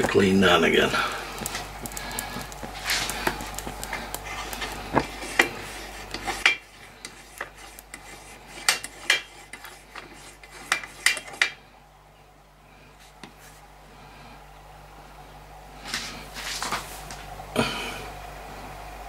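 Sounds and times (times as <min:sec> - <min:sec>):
metal clicking and rubbing: 0:01.4 - 0:11.6.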